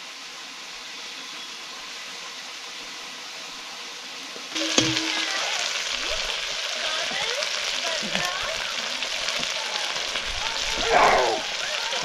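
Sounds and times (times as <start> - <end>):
food sizzling in a pan: 0.0 - 12.0
pan clank: 4.6 - 5.3.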